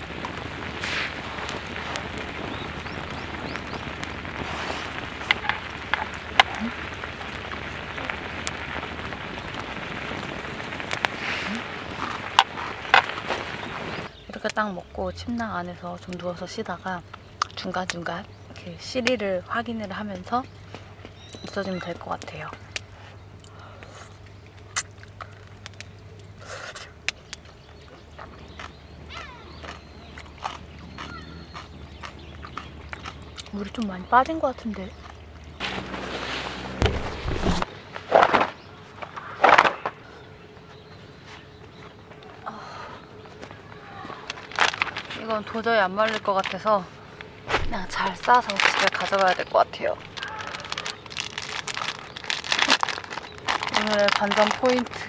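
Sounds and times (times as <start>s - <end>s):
sharp fire pops: 0.0s - 14.6s, 35.6s - 40.1s, 47.4s - 55.0s
campfire crackling: 0.0s - 55.0s
steady low hum: 22.2s - 50.2s.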